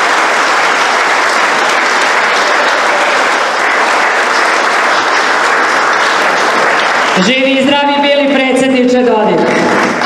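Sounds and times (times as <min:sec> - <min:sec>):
crowd applauding: 0:00.0 - 0:08.2, 0:09.3 - 0:10.0.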